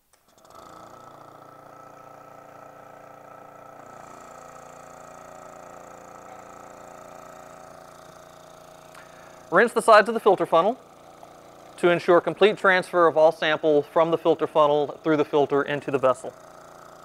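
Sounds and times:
vacuum pump humming: 0.1 - 17.0.

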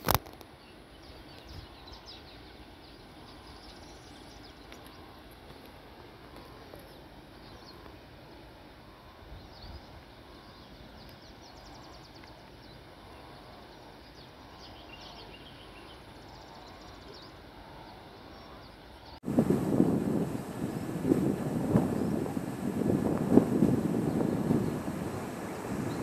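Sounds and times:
bird chirps and trills: 9.0 - 19.2.

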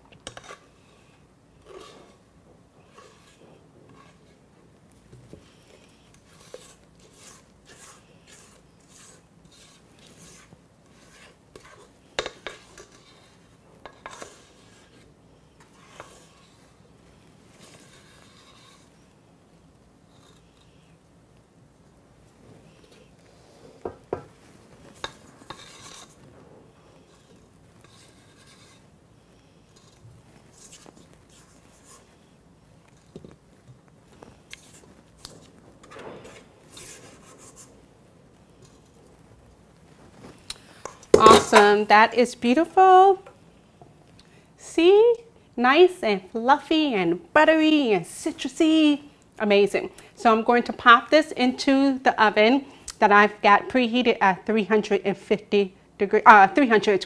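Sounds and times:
spatula scraping metal bowl: 0.2 - 0.8, 1.6 - 2.2, 2.8 - 4.4, 6.2 - 16.8, 17.6 - 19.0, 25.0 - 26.2, 27.1 - 28.9.

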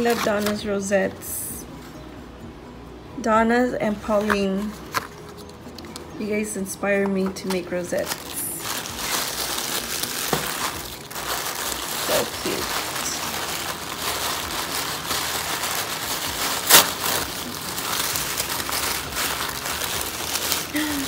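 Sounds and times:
tissue paper rustling: 0.0 - 0.6, 7.9 - 21.0
sharp paper crackle: 0.0 - 0.7, 7.4 - 21.0.

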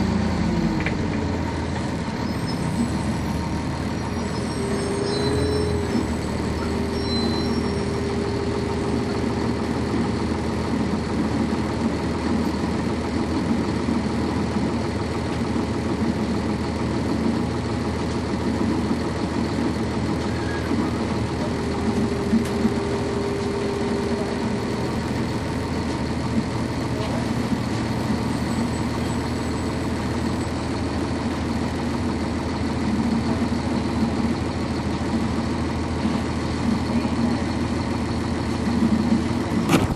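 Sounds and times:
diesel bus engine running: 0.0 - 39.9
steady tone: 2.4 - 11.0, 21.2 - 25.9.

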